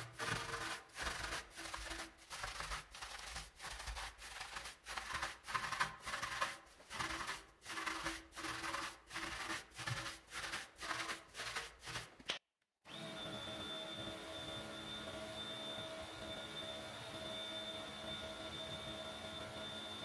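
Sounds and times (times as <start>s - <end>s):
brush scrubbing a wheel: 0.0s - 12.2s.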